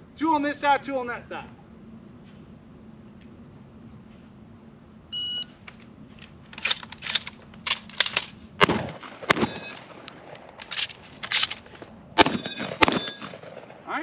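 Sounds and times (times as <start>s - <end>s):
shotgun action closing: 5.6s - 13.6s
shotgun shots: 8.0s - 11.5s, 12.2s - 13.9s
metallic ring: 8.9s - 9.8s, 12.3s - 13.4s.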